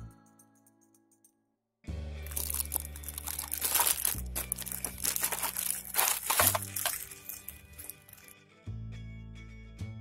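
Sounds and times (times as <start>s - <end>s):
background music: 0.0s - 10.0s
plastic wrapping crinkling: 2.3s - 8.3s.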